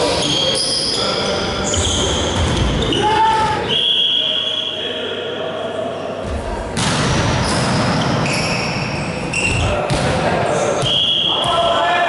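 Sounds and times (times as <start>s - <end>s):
volleyball hit and bouncing: 6.2s - 8.3s, 9.5s - 11.7s
players shouting: 10.8s - 12.0s.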